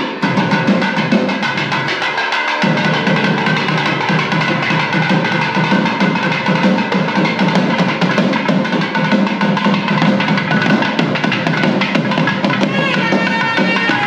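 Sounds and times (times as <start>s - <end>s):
fast dense drumming: 0.0s - 14.0s
sustained high notes: 12.6s - 14.0s.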